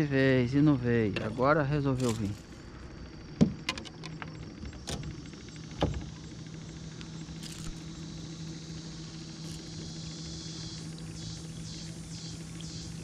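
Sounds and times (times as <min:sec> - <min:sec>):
electric motor humming: 0:00.0 - 0:13.0
knocks in aluminium boat: 0:03.4 - 0:06.2.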